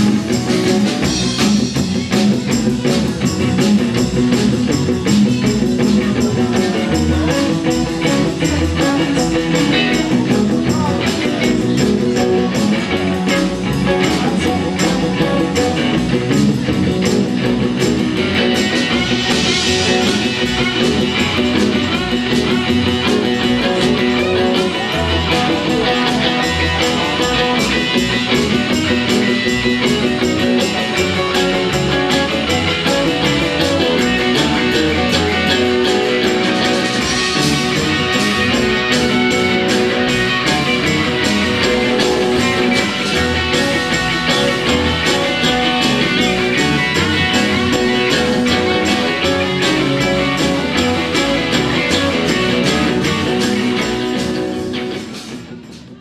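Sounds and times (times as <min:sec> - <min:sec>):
live electric blues band: 0:00.0 - 0:56.0.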